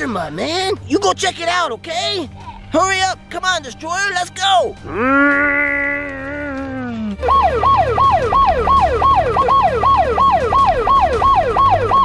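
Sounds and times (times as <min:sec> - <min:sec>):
toy electronic siren wailing: 0:07.2 - 0:12.0.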